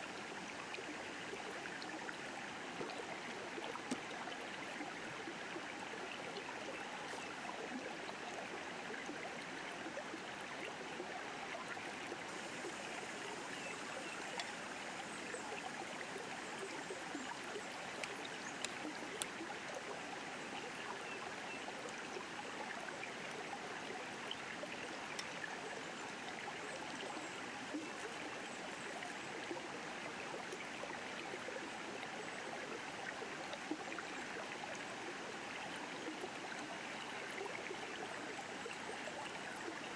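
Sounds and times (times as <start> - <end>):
faint clicks: 3.6 - 4.2, 12.9 - 19.9, 24.6 - 26.2.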